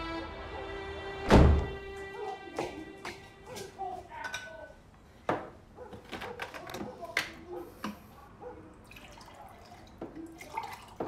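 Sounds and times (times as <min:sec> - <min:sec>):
glass and dishes clinking: 0:04.2 - 0:04.7.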